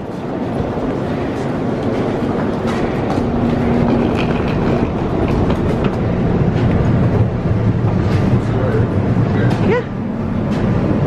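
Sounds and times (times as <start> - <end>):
train equipment rush and hum: 0.0 - 11.0.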